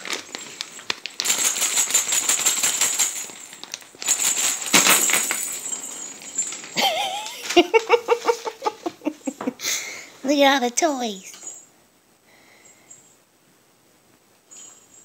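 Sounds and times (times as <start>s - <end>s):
paper and plastic rustling: 0.0s - 8.6s.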